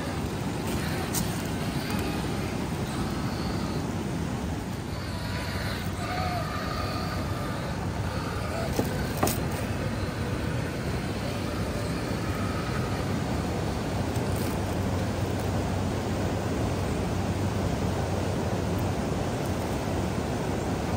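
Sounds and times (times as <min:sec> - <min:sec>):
toy truck electric motor whining: 0:00.0 - 0:15.6
low rush of noise: 0:00.0 - 0:20.9.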